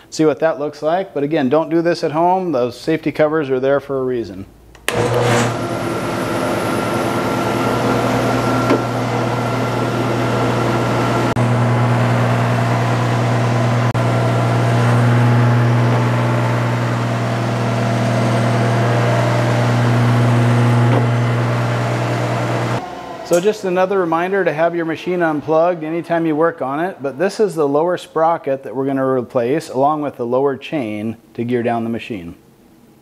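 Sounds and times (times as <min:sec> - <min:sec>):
planer machine hum: 0:04.9 - 0:27.2.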